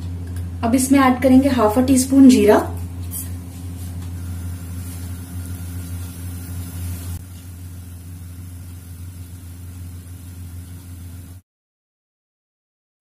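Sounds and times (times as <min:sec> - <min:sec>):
low motor hum: 0:00.0 - 0:11.4
seeds sizzling in hot oil: 0:03.0 - 0:11.4.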